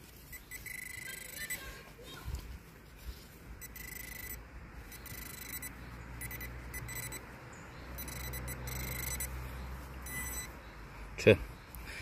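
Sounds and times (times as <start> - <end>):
metal detector probe alert tone: 0.3 - 1.6, 3.6 - 7.3, 8.0 - 9.4, 10.0 - 10.5.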